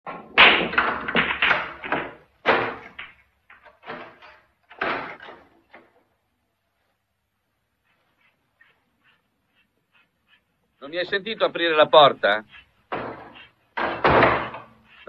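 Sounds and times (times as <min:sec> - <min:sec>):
pool balls clacking: 0:00.1 - 0:06.2, 0:11.4 - 0:15.0.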